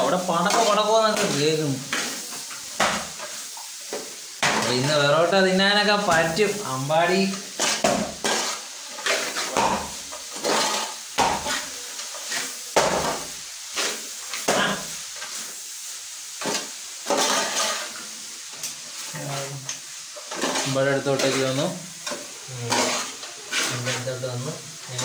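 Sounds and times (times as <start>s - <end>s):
onions sizzling: 0.0s - 25.0s
metal spoon scraping a pan: 0.4s - 5.0s, 7.3s - 15.4s, 16.4s - 18.1s, 20.1s - 25.0s.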